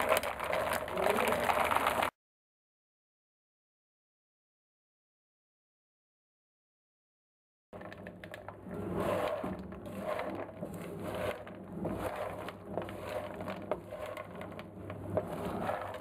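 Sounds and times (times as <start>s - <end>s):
wooden spoon scraping pan: 7.8s - 16.0s.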